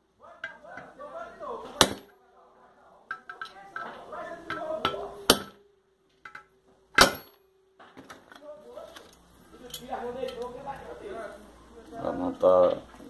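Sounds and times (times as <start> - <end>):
hammer striking metal: 4.5 - 5.6, 6.3 - 7.5.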